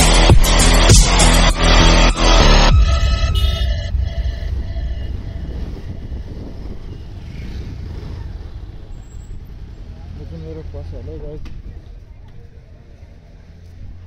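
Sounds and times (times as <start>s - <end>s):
background music: 0.0s - 6.6s
motorcycle engine rumble: 0.0s - 14.0s.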